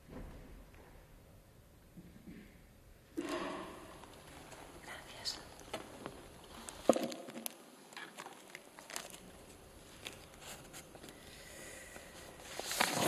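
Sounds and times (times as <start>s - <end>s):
paper sheets rustling: 8.0s - 11.2s, 12.0s - 13.0s.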